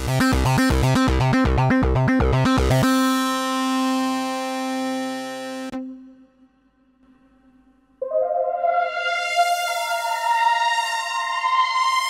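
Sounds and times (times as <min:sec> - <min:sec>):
bright sustained synthesizer note: 0:03.9 - 0:12.0.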